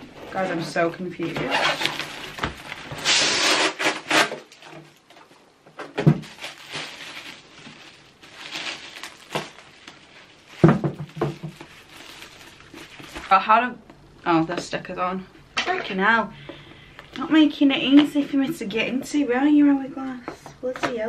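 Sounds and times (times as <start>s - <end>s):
cardboard packaging rustling: 0.0s - 13.6s.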